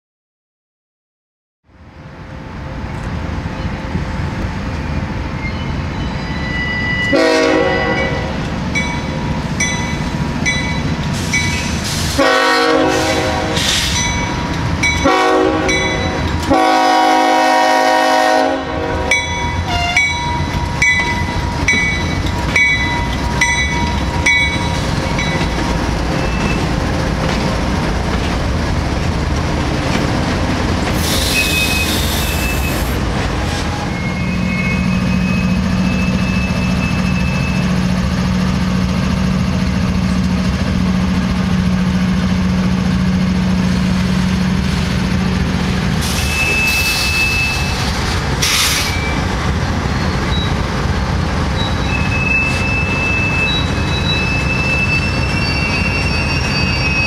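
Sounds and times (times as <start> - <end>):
locomotive engine and rolling train: 1.6 - 57.0
crossing bell ringing: 5.4 - 11.7, 13.9 - 16.4, 19.1 - 26.7, 51.5 - 57.0
train air horn blasts: 7.0 - 8.4, 11.9 - 13.9, 15.0 - 20.1.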